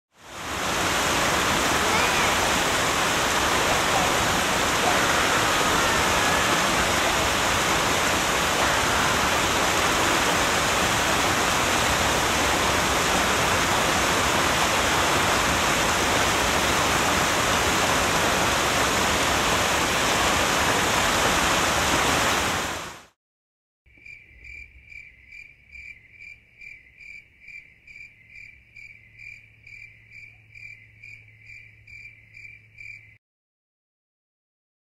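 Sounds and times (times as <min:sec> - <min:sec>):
loud steady hiss: 0:00.2 - 0:22.9
insect-like chirping: 0:23.9 - 0:33.2.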